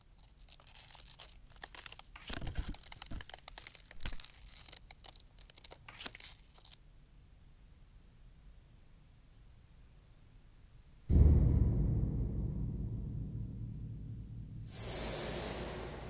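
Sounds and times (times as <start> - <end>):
paper crinkling and rustling: 0.0 - 6.8.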